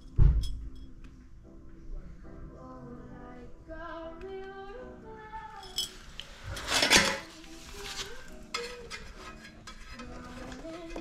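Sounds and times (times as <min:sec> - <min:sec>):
background music with melody: 0:00.0 - 0:11.0.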